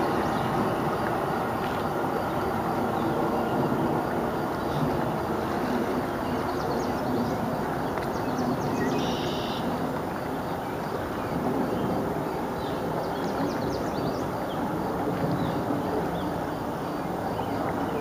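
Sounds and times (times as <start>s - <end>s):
train rumbling: 0.0s - 8.6s.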